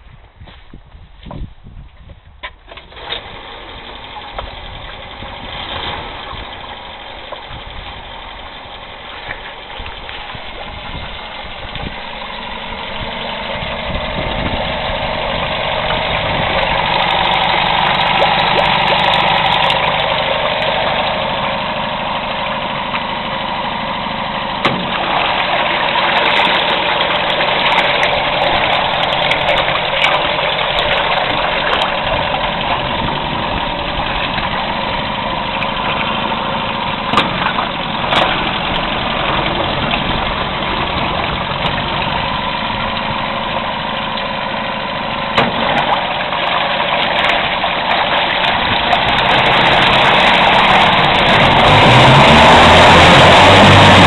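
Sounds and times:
propeller churning water: 0:02.5 - 0:54.0
outboard motor running: 0:02.7 - 0:54.0.

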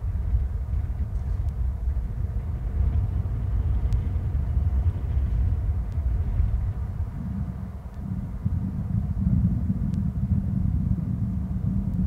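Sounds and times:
wind buffeting microphone: 0:00.0 - 0:12.0
faint ticks: 0:00.3 - 0:01.6, 0:03.8 - 0:04.1, 0:05.1 - 0:10.1, 0:11.6 - 0:12.0.

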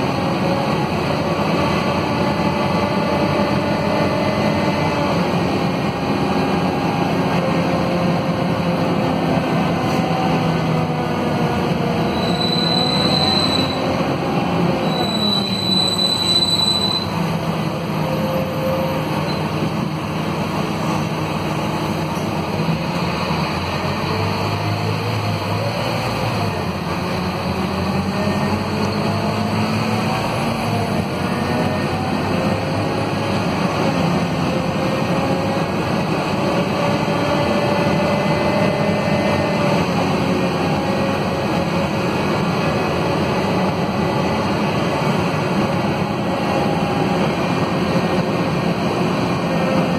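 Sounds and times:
bus diesel engine running: 0:00.0 - 0:49.9
high thin squeal: 0:12.0 - 0:13.9, 0:14.8 - 0:17.3.

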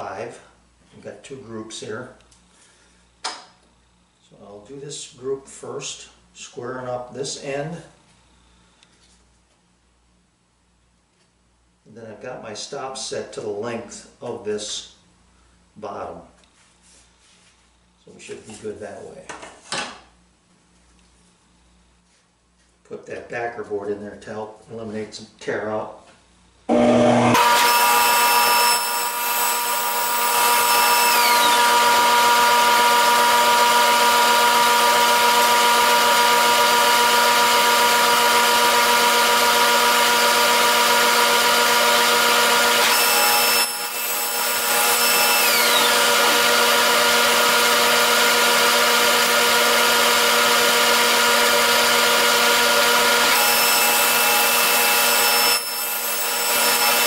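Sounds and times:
table saw cutting wood: 0:26.7 - 0:57.0.

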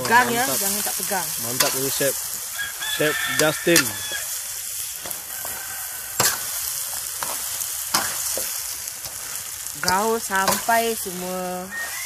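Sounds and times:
meat sizzling in hot oil: 0:00.0 - 0:12.0
metal spatula scraping wok: 0:00.0 - 0:12.0
spatula clanking against wok: 0:06.2 - 0:06.5.

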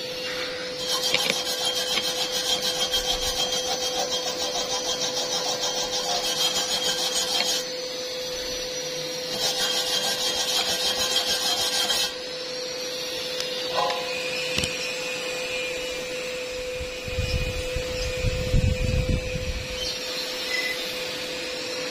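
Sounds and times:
wire wheel scrubbing metal: 0:00.0 - 0:12.2
grinder whining: 0:00.0 - 0:21.9.

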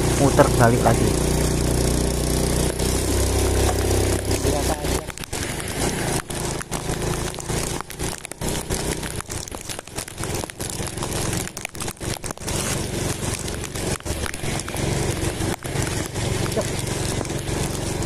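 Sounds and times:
motorbike engine running low: 0:00.0 - 0:18.0
wind and road noise: 0:00.0 - 0:18.0.

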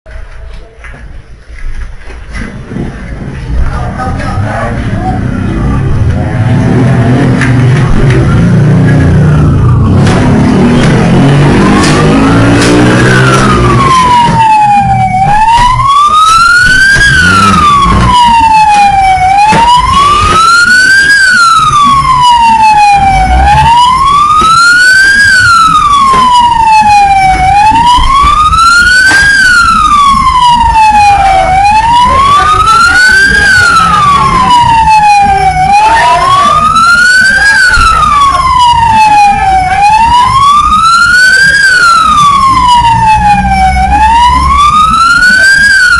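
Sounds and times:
siren wailing: 0:03.8 - 0:45.9.

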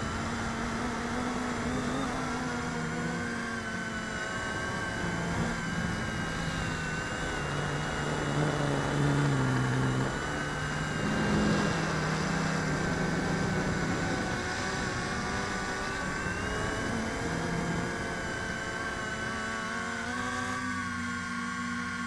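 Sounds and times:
quadcopter propellers whirring: 0:00.0 - 0:22.0.

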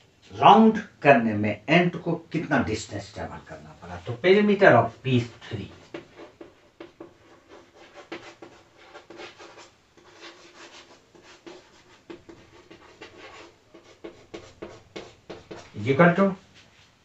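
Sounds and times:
chalk scratching on chalkboard: 0:03.9 - 0:16.0.

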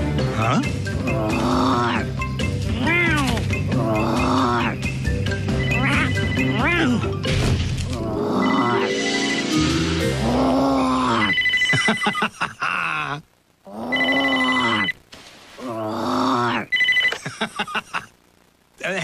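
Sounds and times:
man growling playfully: 0:00.3 - 0:02.2, 0:10.1 - 0:11.4, 0:15.6 - 0:16.7
telephone ringing: 0:05.3 - 0:06.7, 0:08.4 - 0:10.0, 0:11.2 - 0:12.3, 0:13.9 - 0:15.0, 0:16.7 - 0:17.3.

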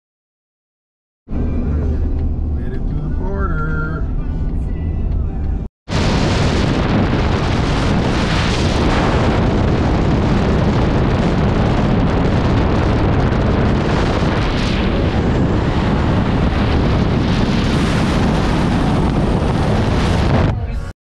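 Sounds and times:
road and engine noise: 0:01.3 - 0:08.4, 0:09.0 - 0:20.9
wind buffeting microphone: 0:05.9 - 0:20.9.

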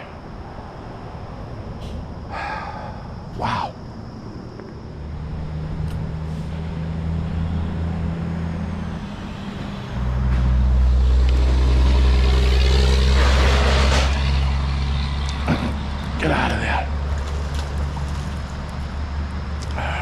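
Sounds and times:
heavier engine: 0:00.0 - 0:20.0
vehicle engine droning: 0:00.0 - 0:20.0.

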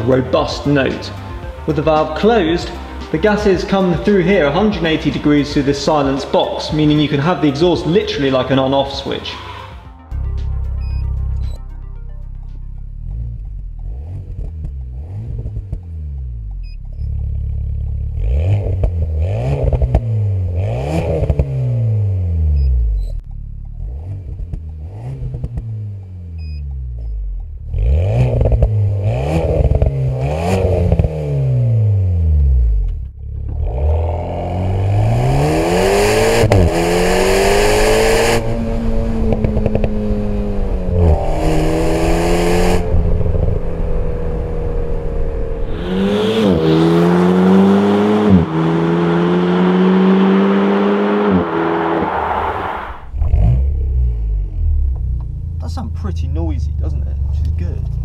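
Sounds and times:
car engine revving: 0:00.0 - 0:58.0
car accelerating hard: 0:13.0 - 0:16.5, 0:17.2 - 0:22.6, 0:23.6 - 0:26.4, 0:27.6 - 0:55.0.

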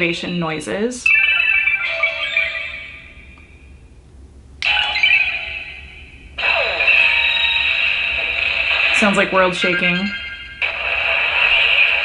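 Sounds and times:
shimmering electronic chime: 0:01.1 - 0:03.7, 0:04.7 - 0:08.0, 0:09.6 - 0:10.6.

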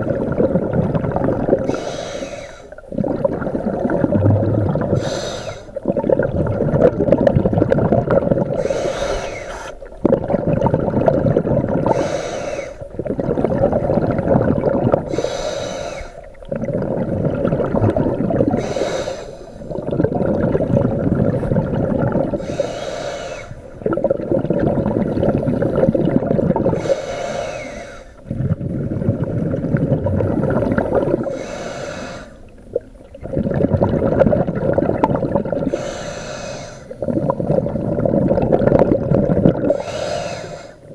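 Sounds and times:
bubbling exhale underwater: 0:00.0 - 0:40.9
regulator hissing inhale: 0:01.6 - 0:02.8, 0:05.0 - 0:05.8, 0:08.6 - 0:09.8, 0:11.9 - 0:12.9, 0:15.1 - 0:16.4, 0:18.6 - 0:19.8, 0:22.4 - 0:23.8, 0:26.7 - 0:28.2, 0:31.2 - 0:32.5, 0:35.7 - 0:37.0, 0:39.7 - 0:40.9.

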